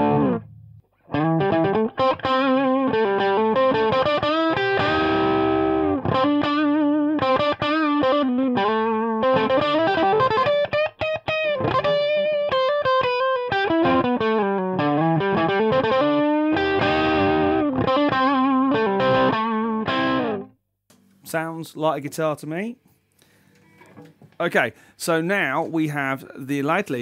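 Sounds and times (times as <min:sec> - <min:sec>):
electric guitar improvising: 0:00.0 - 0:20.6.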